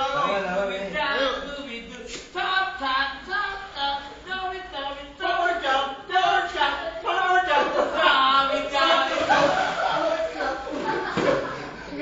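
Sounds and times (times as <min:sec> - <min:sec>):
voices calling out in sing-song: 0:00.0 - 0:12.0.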